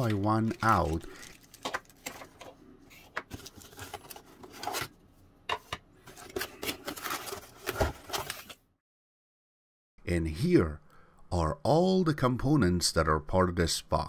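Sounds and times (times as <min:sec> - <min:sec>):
plastic bags rustling: 0:00.0 - 0:04.9
cardboard scraping and rustling: 0:06.0 - 0:08.6.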